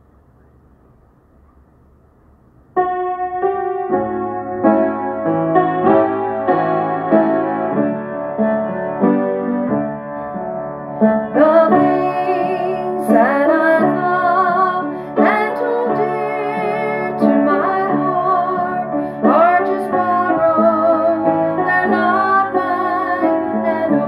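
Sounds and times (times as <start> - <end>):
piano chords: 1.3 - 24.0
woman singing a hymn: 11.3 - 24.0.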